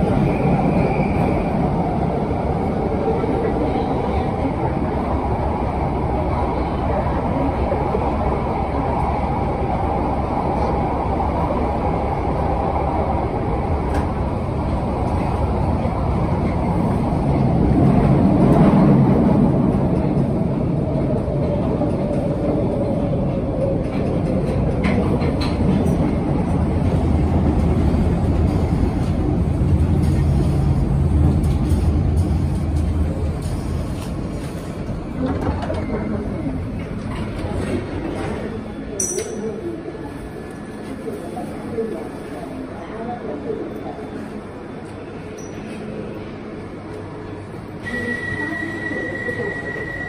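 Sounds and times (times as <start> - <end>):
train rumble and rattle in tunnel: 0.0 - 50.0.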